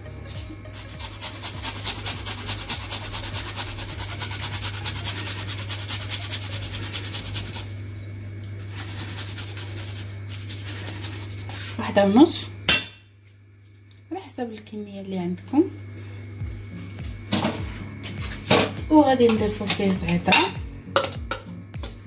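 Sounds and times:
garlic rasping on hand grater: 0.3s - 7.7s, 8.6s - 11.7s.

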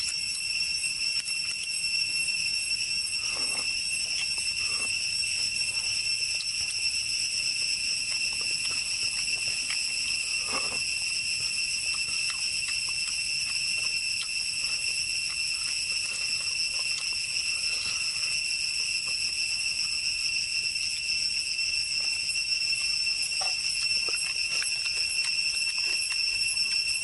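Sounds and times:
soft eating clicks: 0.0s - 0.4s, 3.2s - 18.5s, 22.1s - 27.0s
insects buzzing: 0.0s - 27.0s.

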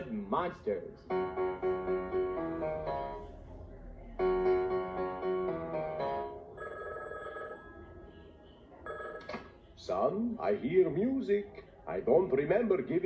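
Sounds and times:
keyboard chords music: 1.0s - 6.6s
telephone bell ringing: 6.3s - 8.0s, 8.8s - 9.3s.

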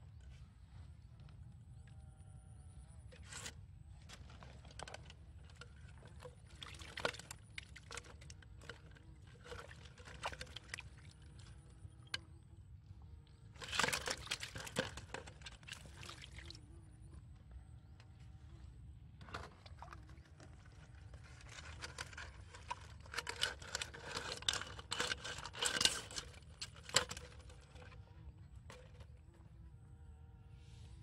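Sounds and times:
water sloshing and dripping: 4.1s - 12.2s, 13.6s - 16.6s.

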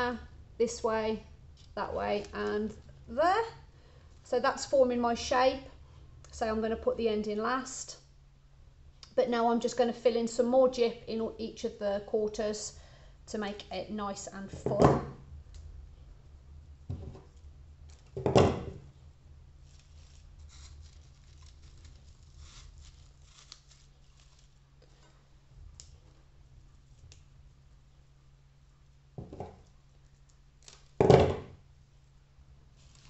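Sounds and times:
steady low hum: 0.0s - 33.0s
dried flowers rustling: 19.5s - 27.1s, 32.7s - 33.0s.

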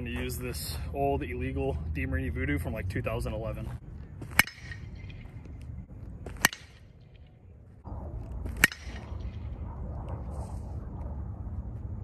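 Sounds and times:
metal baseball bat hitting ball: 4.2s - 5.5s, 6.3s - 7.3s, 8.4s - 9.6s.

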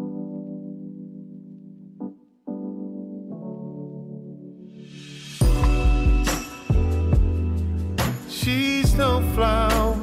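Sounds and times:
heavy bass beat: 5.4s - 10.0s.

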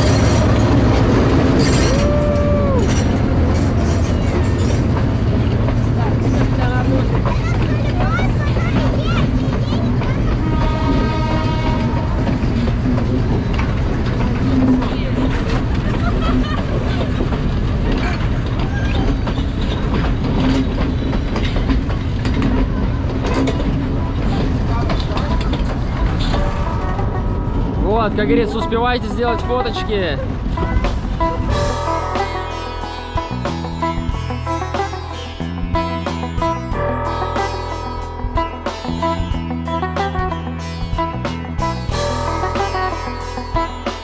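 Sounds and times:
train rumbling past: 0.0s - 44.0s
wheel clicks over rail joints: 11.8s - 26.5s.

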